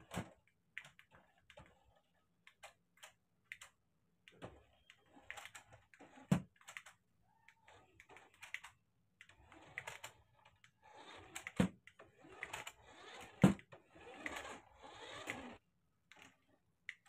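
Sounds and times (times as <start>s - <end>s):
toy car motor whirring: 9.3s - 15.6s.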